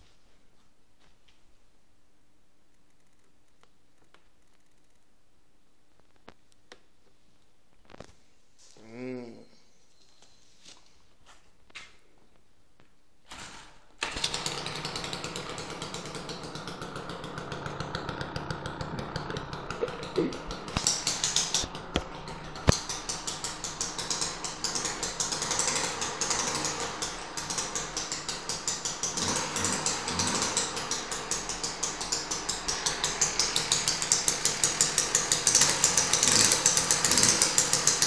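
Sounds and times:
small two-stroke engine running: 0:13.4 - 0:38.0.

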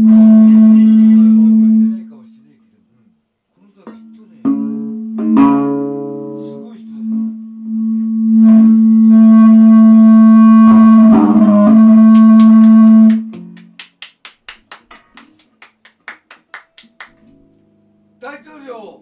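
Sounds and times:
electric guitar sustained note: 0:00.0 - 0:02.0, 0:04.1 - 0:13.6
hands clapping: 0:12.1 - 0:17.4.

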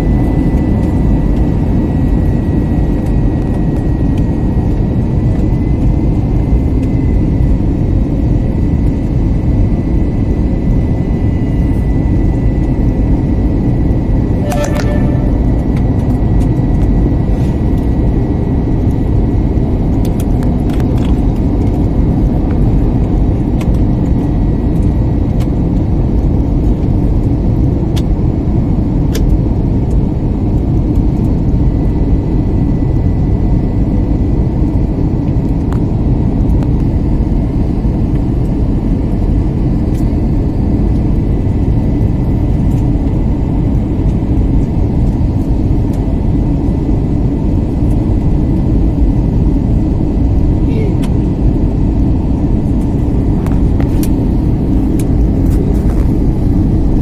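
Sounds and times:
jet engines rumbling: 0:10.2 - 0:18.8, 0:47.0 - 0:57.0.

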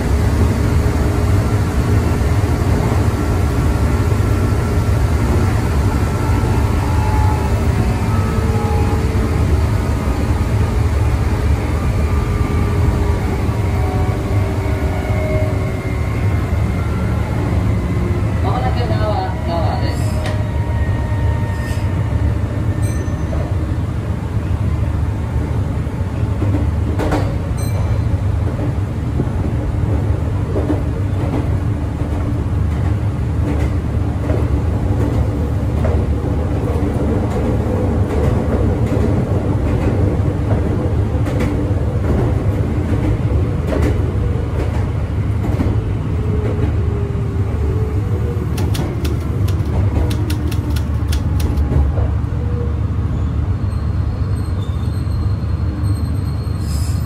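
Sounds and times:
train interior rumble: 0:00.0 - 0:56.9
sharp click: 0:48.6 - 0:51.7.

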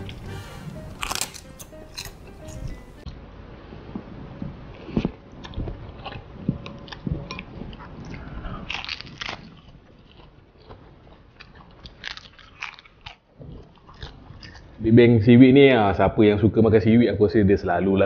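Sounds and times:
chewing noodles: 0:00.0 - 0:03.0, 0:04.7 - 0:14.8
crisp crackling bites into seaweed: 0:01.0 - 0:02.2.

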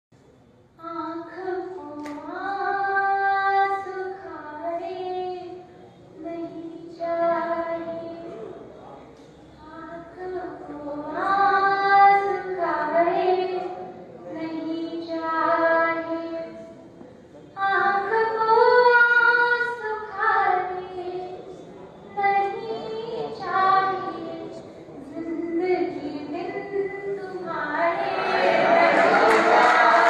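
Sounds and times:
woman singing into a microphone: 0:00.8 - 0:05.6, 0:09.6 - 0:16.7, 0:17.6 - 0:21.4, 0:22.1 - 0:28.0.

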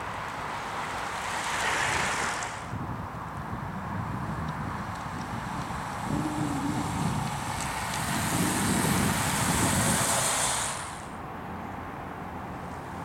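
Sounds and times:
outdoor background: 0:00.0 - 0:13.0
bicycle tyres hissing on tarmac: 0:00.3 - 0:02.8, 0:03.6 - 0:11.2.

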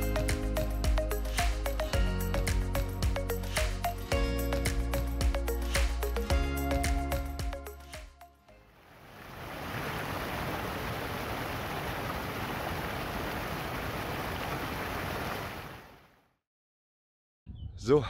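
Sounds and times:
waterfall splashing over rocks: 0:08.8 - 0:16.0.

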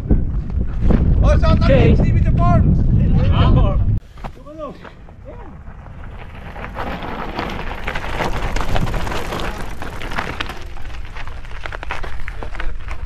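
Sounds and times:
bike tyres crunching on gravel: 0:04.1 - 0:13.0.

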